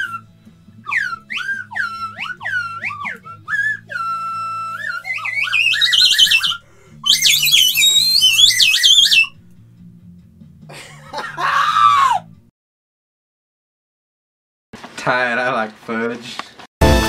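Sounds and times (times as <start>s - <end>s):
slide whistle swooping: 0.0s - 9.4s.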